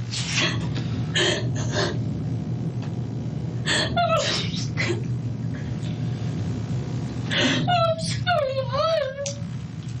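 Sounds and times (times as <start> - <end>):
low hum: 0.0 - 10.0
woman crying: 3.7 - 5.1, 7.3 - 9.2.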